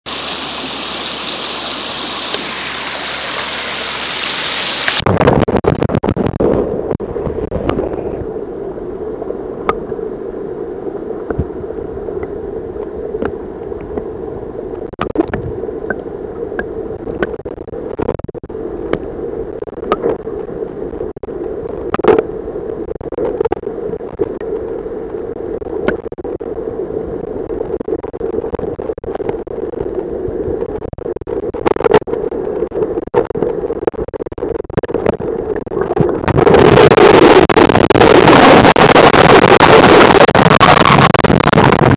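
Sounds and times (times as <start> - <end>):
muffled underwater rush of water: 0.1 - 41.9
sharp underwater clicks and knocks: 14.8 - 16.0, 16.6 - 19.0, 19.7 - 20.3, 25.8 - 26.2.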